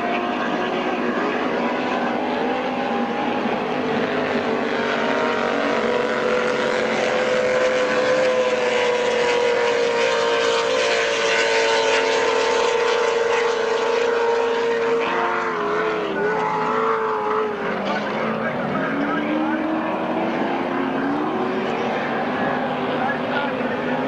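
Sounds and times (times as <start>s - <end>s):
power boat engine at high speed: 0.0s - 24.0s.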